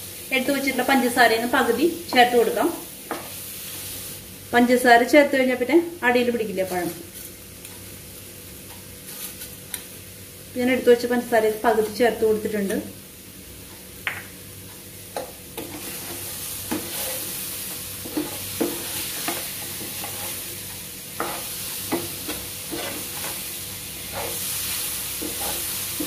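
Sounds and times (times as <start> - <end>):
banana sizzling in frying pan: 0.0 - 26.0
wooden spatula scraping pan: 15.6 - 20.6, 21.2 - 26.0.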